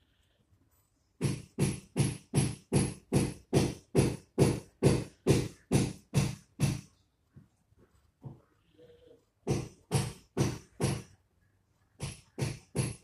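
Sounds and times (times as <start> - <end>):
animal calling with low notes: 8.5 - 9.3.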